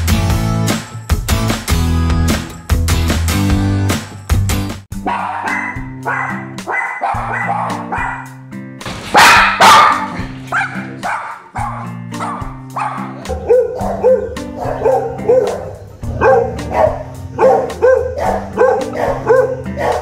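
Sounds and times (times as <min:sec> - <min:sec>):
background music: 0:00.0 - 0:20.0
dogs barking: 0:05.0 - 0:20.0.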